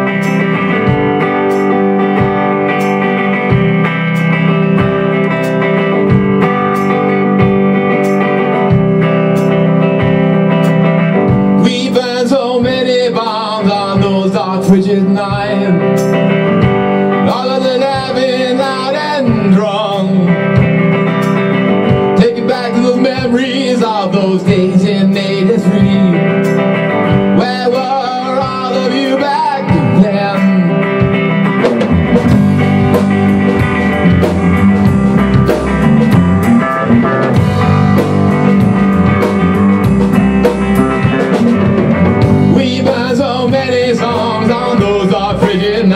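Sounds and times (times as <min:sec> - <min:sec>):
drum kit: 0:00.0 - 0:45.9
electric guitars: 0:00.0 - 0:45.9
wavering lead melody: 0:29.9 - 0:45.9.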